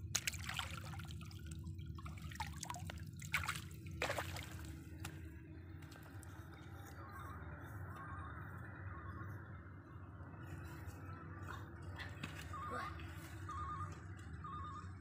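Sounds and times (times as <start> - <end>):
shallow water splashing: 0.0 - 5.3.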